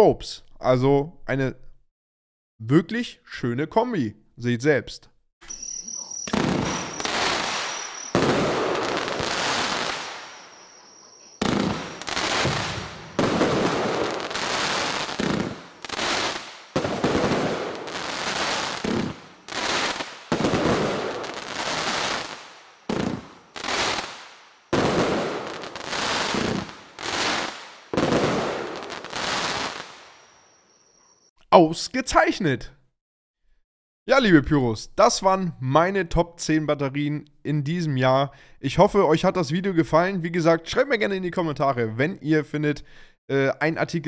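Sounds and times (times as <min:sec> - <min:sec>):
firework battery bursts: 0:05.5 - 0:30.6.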